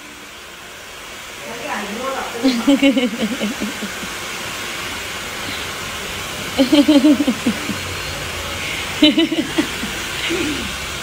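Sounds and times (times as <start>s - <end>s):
rushing hiss of blowing air: 0.0s - 11.0s
person's voice: 1.4s - 3.9s.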